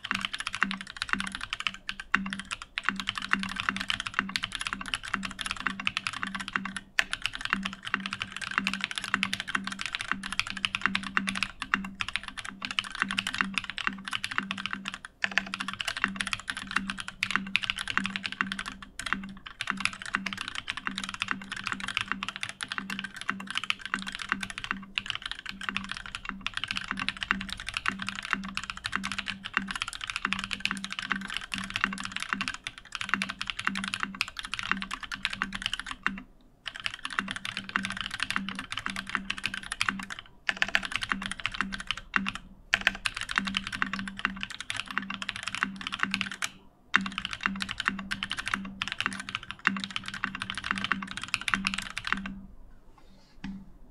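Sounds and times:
fast typing on mechanical keyboard: 0:00.0 - 0:52.4.

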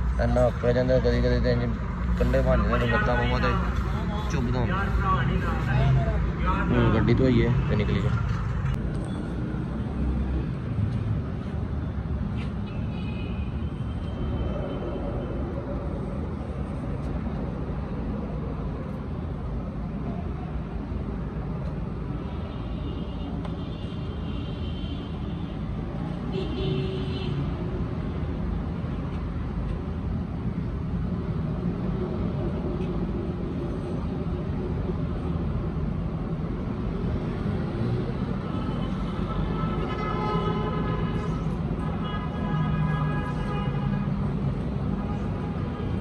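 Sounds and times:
road traffic rumble: 0:00.0 - 0:46.0.

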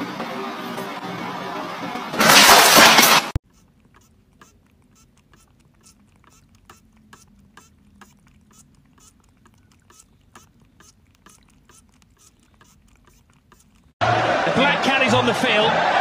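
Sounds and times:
cat licking: 0:03.4 - 0:14.0.

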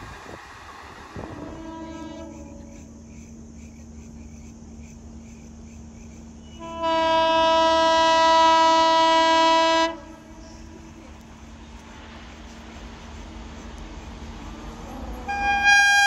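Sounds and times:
locomotive air horn blast: 0:01.2 - 0:02.7, 0:06.6 - 0:11.0, 0:15.2 - 0:16.0.

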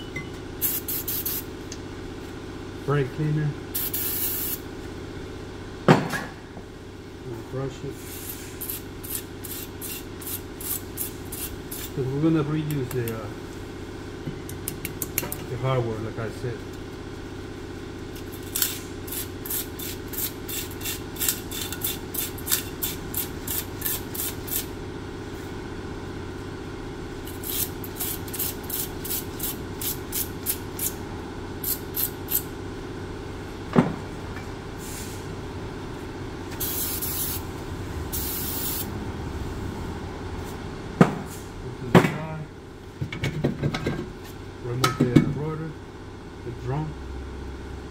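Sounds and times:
aerosol spray hissing: 0:00.6 - 0:01.4, 0:36.6 - 0:37.4, 0:38.2 - 0:38.9.

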